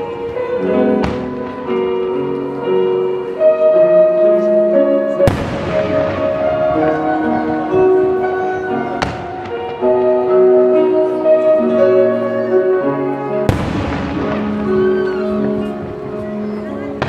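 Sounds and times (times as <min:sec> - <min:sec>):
music with sustained notes: 0:00.0 - 0:17.0
small firework crack: 0:13.5 - 0:15.2.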